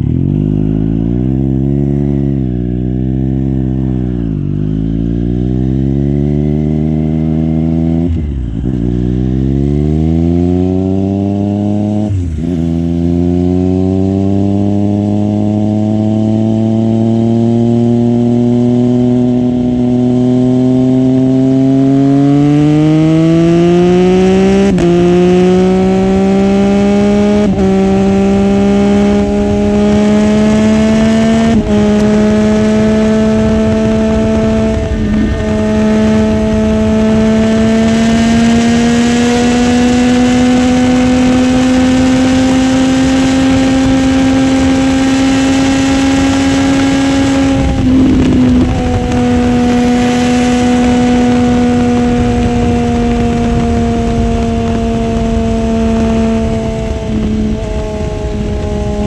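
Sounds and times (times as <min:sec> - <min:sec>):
motorcycle engine accelerating: 0:00.0 - 0:59.0
wind rushing: 0:23.1 - 0:59.0.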